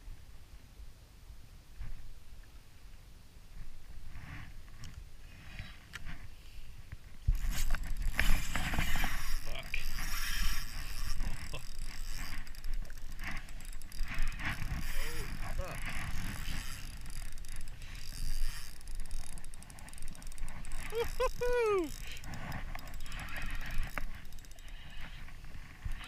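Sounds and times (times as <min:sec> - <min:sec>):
fishing reel cranking: 0:07.2 - 0:26.0
faint clicks: 0:09.8 - 0:26.0.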